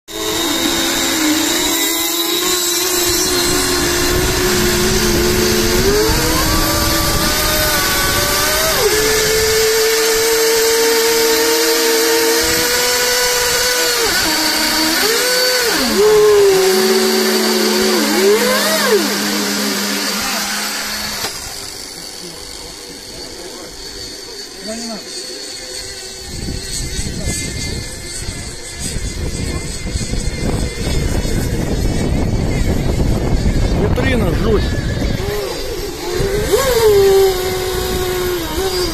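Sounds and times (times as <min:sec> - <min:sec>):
model boat engines whining: 0:00.1 - 0:38.9.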